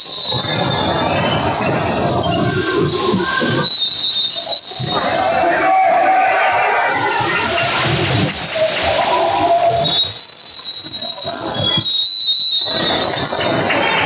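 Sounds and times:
referee's whistle: 0.0 - 0.9, 3.6 - 5.7, 9.8 - 13.9
game noise in a gym: 0.0 - 14.0.

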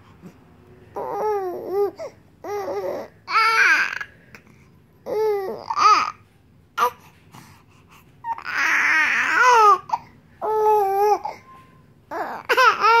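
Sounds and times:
baby cooing and babbling: 0.9 - 4.1, 5.0 - 6.2, 6.8 - 7.1, 8.2 - 13.0.

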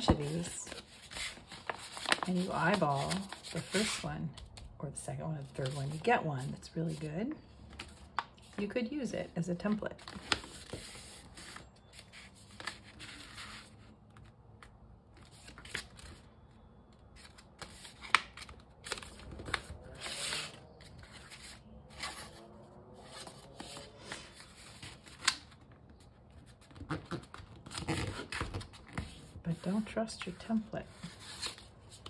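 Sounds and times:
paper rustling and sliding: 0.0 - 4.1, 10.0 - 13.8.

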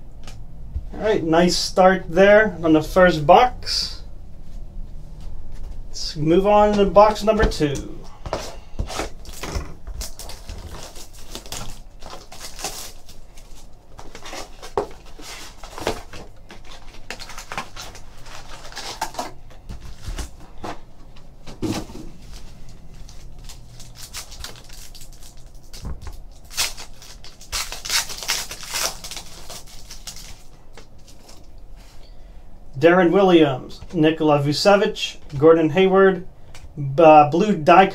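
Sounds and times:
foil packs rustling: 6.6 - 32.0
foil pack tearing open: 9.0 - 19.4, 23.0 - 31.5
box cutter slitting wrap: 26.5 - 30.2.

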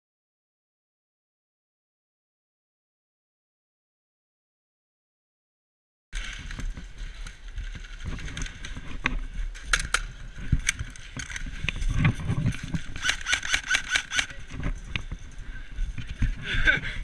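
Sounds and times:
airsoft gun shots: 13.0 - 14.4.

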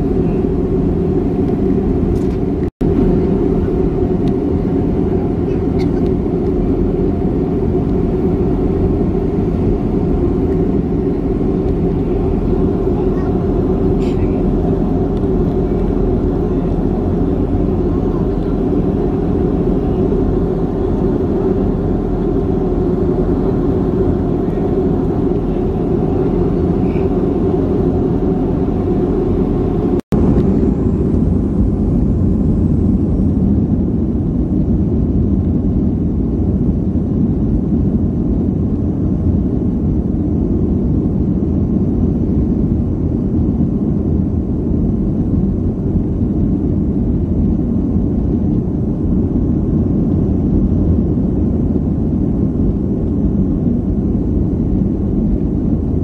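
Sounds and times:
jet engines rumbling in cabin: 0.0 - 56.0.

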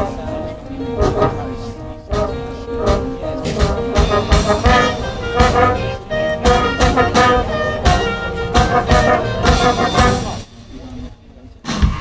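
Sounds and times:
marching band playing: 0.0 - 10.6
drum hits: 2.1 - 10.5, 11.6 - 12.0.

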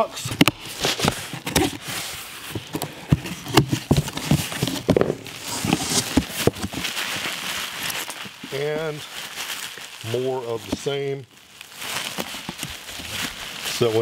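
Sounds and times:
bubble wrap crinkling: 0.0 - 14.0
cardboard box flaps opening: 0.2 - 6.9.

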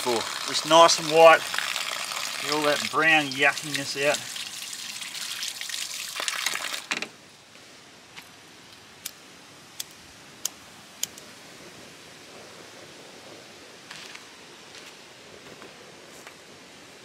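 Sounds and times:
tap water splashing: 0.0 - 7.0.

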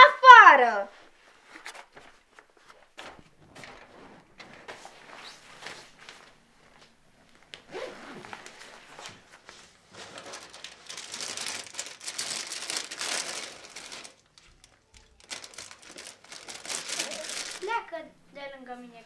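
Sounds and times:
plastic wrapper crinkling and tearing: 9.9 - 17.8.

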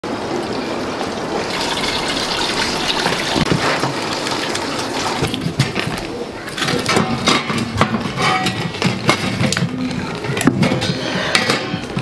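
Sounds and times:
flowing water rushing: 0.1 - 6.4.

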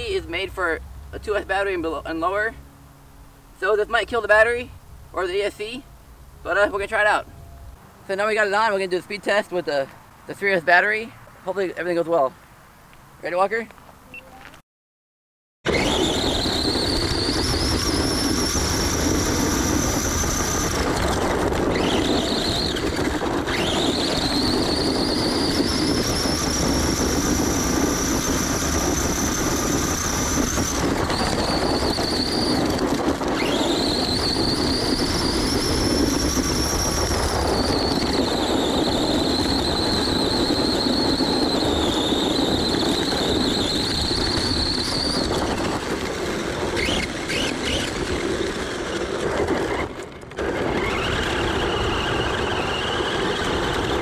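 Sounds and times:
electric motor whining: 15.7 - 54.0.

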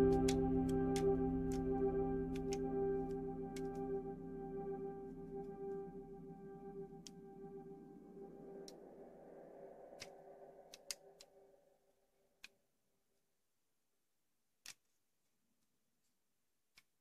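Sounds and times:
soft ambient background music: 0.0 - 11.3.

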